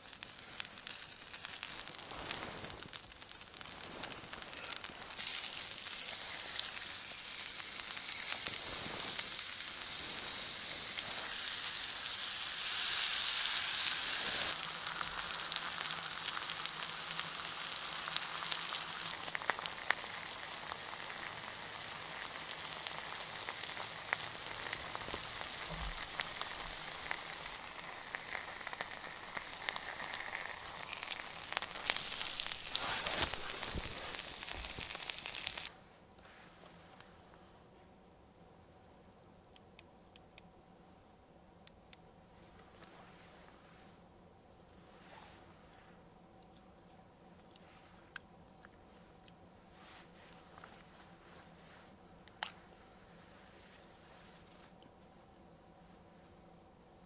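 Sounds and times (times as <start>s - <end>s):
steak sizzling on hot stone: 0.0s - 35.7s
fat popping: 22.1s - 35.7s.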